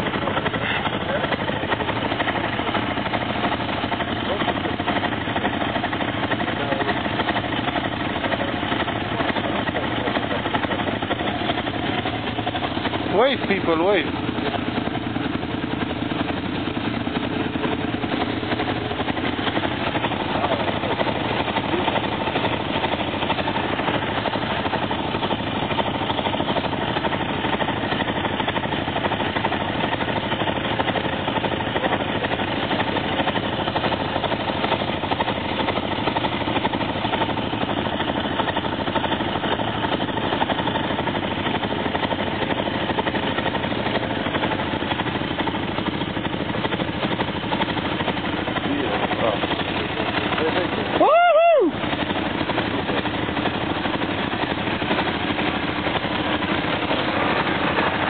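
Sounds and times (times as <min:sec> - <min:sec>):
quad bike engine running: 0:00.0 - 0:58.0.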